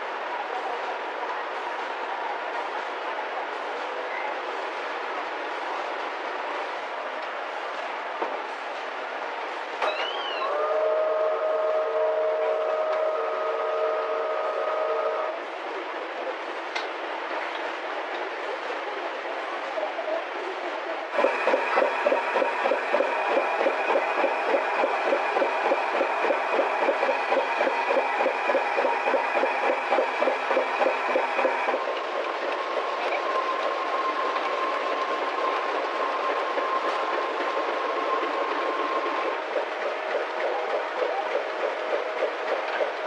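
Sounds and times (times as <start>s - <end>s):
machinery humming: 21.1s - 43.0s.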